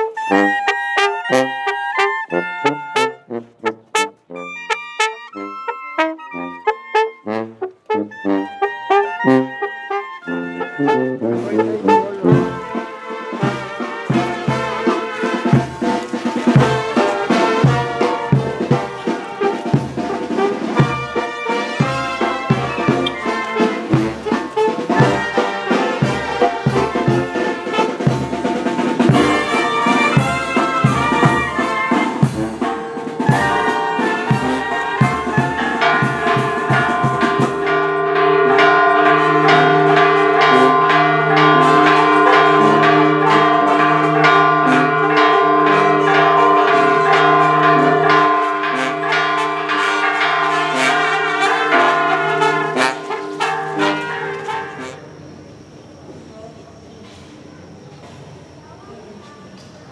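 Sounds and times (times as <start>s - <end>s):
church bells ringing: 0.0s - 7.7s, 8.3s - 55.1s
brass band playing: 0.0s - 55.1s
drum beat: 11.3s - 54.8s.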